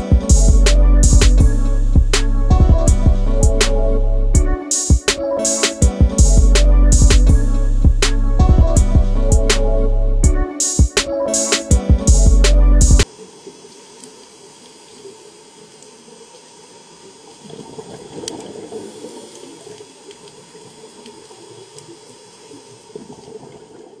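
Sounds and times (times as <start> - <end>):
underwater hiss of moving water: 13.0 - 23.9
faint clicks: 19.2 - 23.2.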